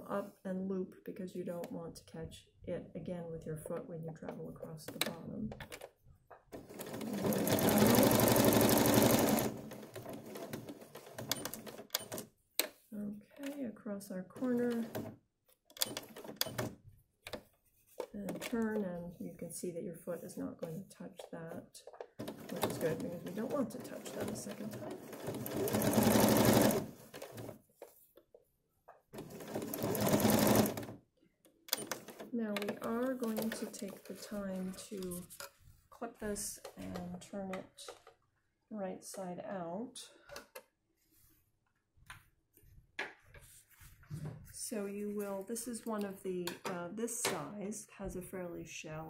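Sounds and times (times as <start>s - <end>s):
sewing machine stitching: 6.5s - 12.3s, 14.4s - 16.8s, 22.2s - 27.6s, 29.2s - 31.0s, 31.7s - 34.2s.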